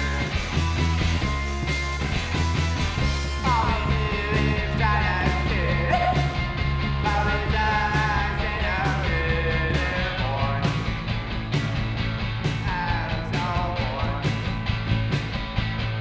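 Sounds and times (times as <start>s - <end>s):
bass guitar: 0.0s - 16.0s
drum kit: 0.0s - 16.0s
electric guitar: 0.0s - 16.0s
man singing into microphone: 3.4s - 6.4s, 7.0s - 10.8s, 12.6s - 14.4s.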